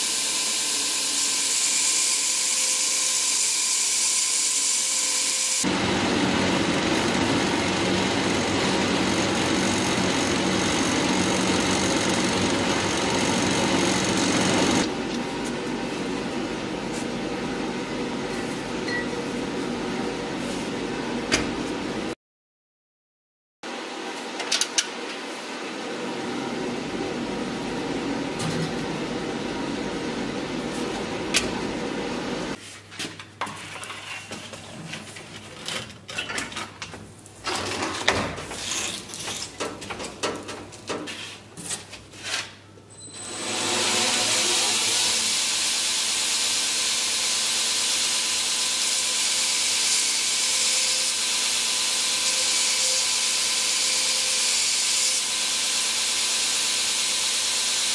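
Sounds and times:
belt grinder droning: 0.0 - 15.1, 43.0 - 57.9.

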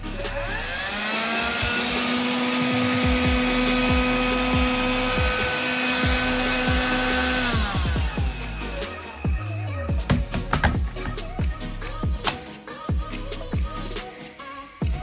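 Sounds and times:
handheld vacuum whining: 0.0 - 11.4
background music beat: 0.0 - 15.0.

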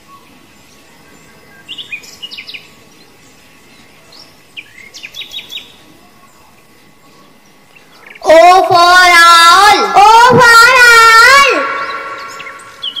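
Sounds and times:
small bird chirping: 0.0 - 8.3, 11.7 - 13.0
faint outdoor hiss: 0.0 - 13.0.

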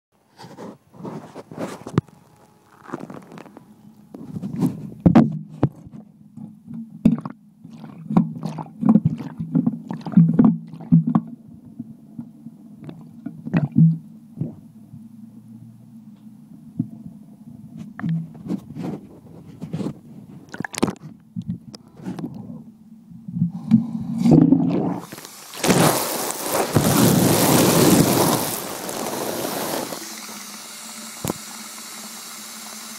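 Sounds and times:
muffled sloshing and rubbing: 0.4 - 5.0, 17.8 - 21.1, 24.2 - 30.2
low hum: 1.8 - 18.5
water splashing over microphone: 7.1 - 11.3, 20.4 - 21.0, 24.3 - 30.4
steady hiss: 24.9 - 32.9.

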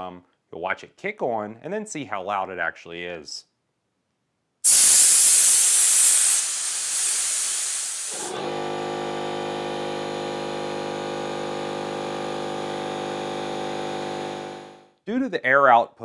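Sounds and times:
compressed air hissing: 4.7 - 8.6
air compressor humming: 4.7 - 14.8.

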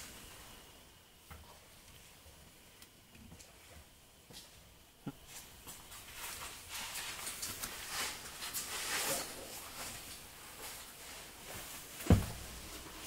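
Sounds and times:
rustling: 5.3 - 13.0
shuffling footsteps: 5.3 - 13.0.

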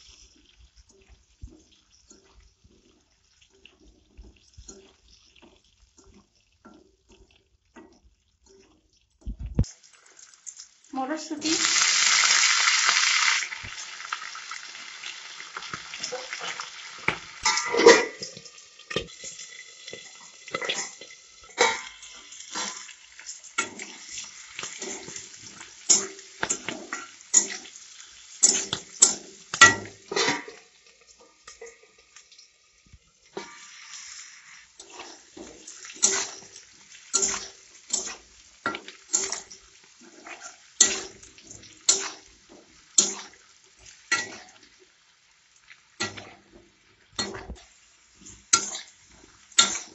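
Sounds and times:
vegetables sizzling in hot oil: 0.0 - 49.9
spatula scraping and clinking pan: 15.6 - 32.0, 33.3 - 44.7, 46.0 - 46.5, 48.2 - 49.9.

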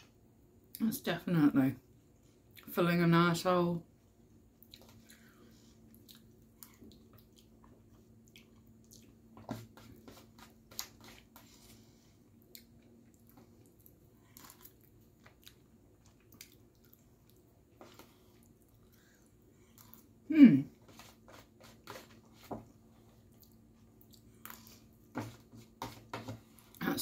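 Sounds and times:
faint steady hum: 0.0 - 27.0
person chewing: 4.6 - 20.2, 22.9 - 25.1.

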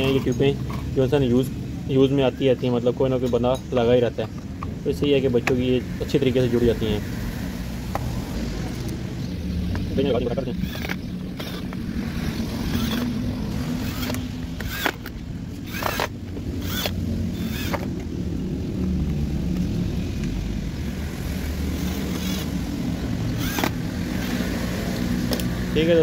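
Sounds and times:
cordless drill driving screws: 10.6 - 11.8, 12.6 - 17.9, 21.8 - 22.5, 23.3 - 24.6.

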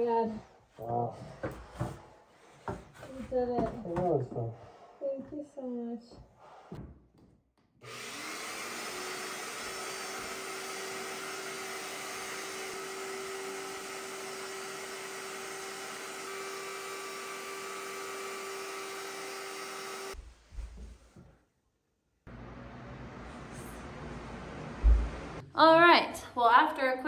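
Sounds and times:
shop vacuum running: 7.8 - 20.2, 22.3 - 25.4.

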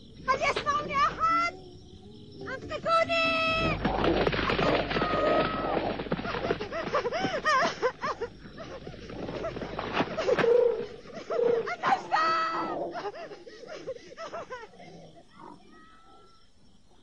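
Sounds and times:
cartoon jungle animal calls: 8.6 - 16.5
long wailing cry: 10.6 - 13.6.

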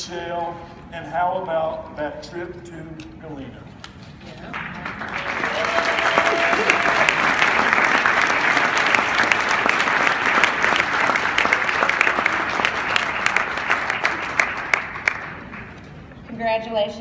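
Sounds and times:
audience applauding: 4.5 - 15.8.

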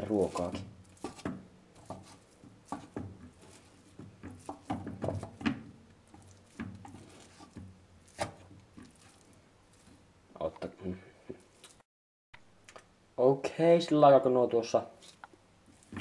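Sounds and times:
wooden spatula knocking on pan: 0.5 - 8.9.

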